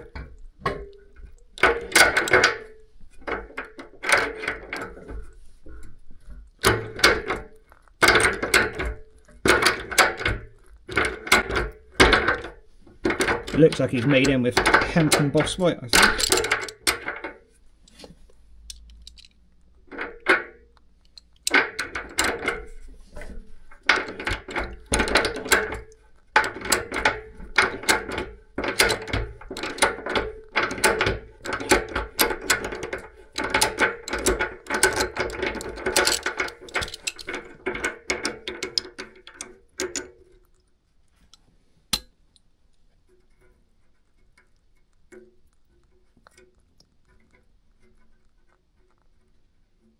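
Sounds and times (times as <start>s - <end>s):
metal tool clicking and grating: 23.8s - 40.7s.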